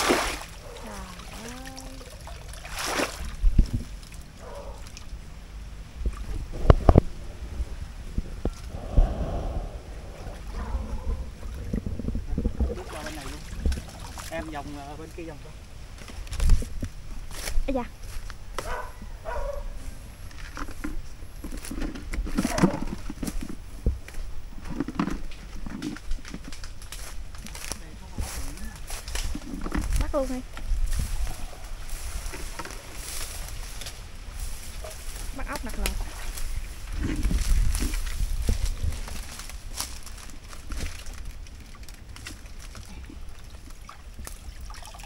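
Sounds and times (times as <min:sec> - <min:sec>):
shallow water stirred by wading: 0:00.0 - 0:15.0, 0:30.8 - 0:45.0
wind rumble on microphone: 0:03.2 - 0:14.5, 0:15.1 - 0:44.6
footsteps crunching dry leaves: 0:26.8 - 0:29.6, 0:30.3 - 0:41.5.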